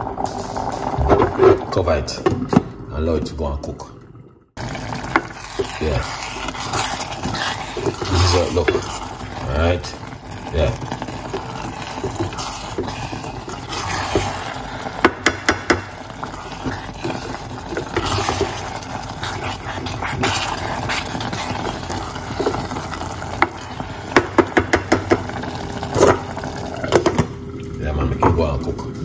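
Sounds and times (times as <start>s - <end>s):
pot bubbling hiss: 0.0s - 4.0s, 4.6s - 29.0s
wooden spoon stirring in pot: 4.6s - 27.3s.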